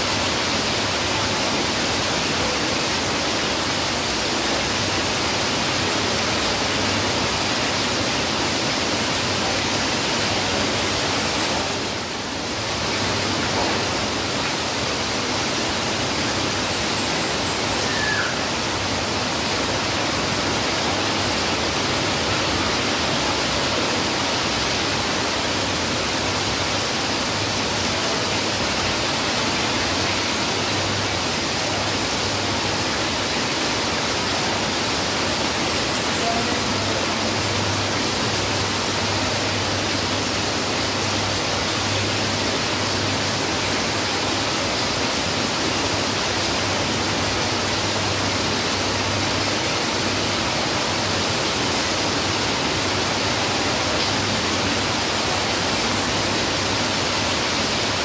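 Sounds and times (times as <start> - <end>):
heavy rain falling: 0.0 - 58.0
water streaming off roof: 0.0 - 58.0.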